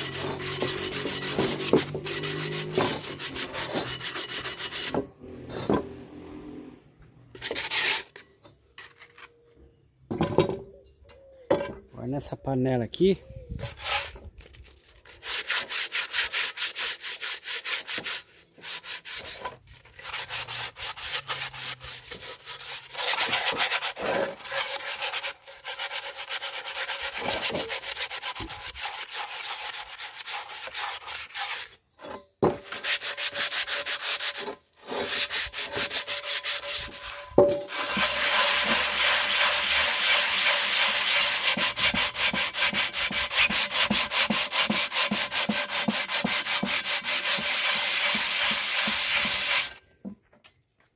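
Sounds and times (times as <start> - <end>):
sandpaper scrubbing iron pot: 0.0 - 5.0, 13.7 - 14.2, 15.0 - 31.8, 32.5 - 49.8.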